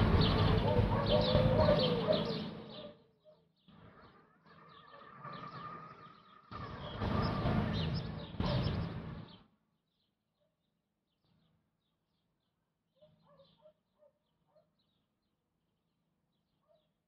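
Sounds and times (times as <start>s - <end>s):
rushing noise with low rumble: 0.0s - 1.9s
small birds chirping: 0.0s - 17.0s.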